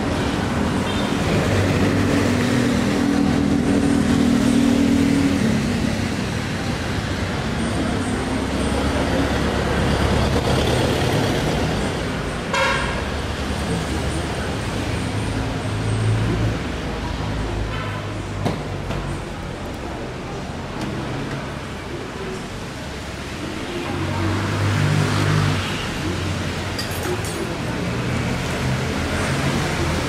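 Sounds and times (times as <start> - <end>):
traffic on wet road: 0.0 - 30.0
vehicle horn toot: 12.5 - 13.0.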